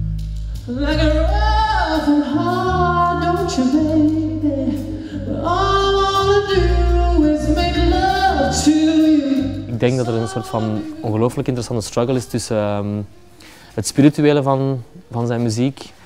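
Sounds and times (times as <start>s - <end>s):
soul band with bass line: 0.0s - 11.2s
person singing long notes: 0.7s - 13.4s.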